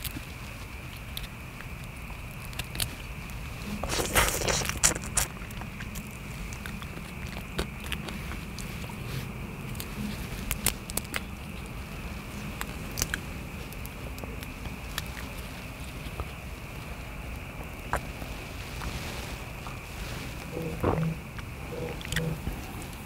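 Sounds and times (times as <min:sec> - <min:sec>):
chewing: 0:00.0 - 0:23.0
steady background noise: 0:00.0 - 0:23.0
prawn shells cracking: 0:00.8 - 0:16.4.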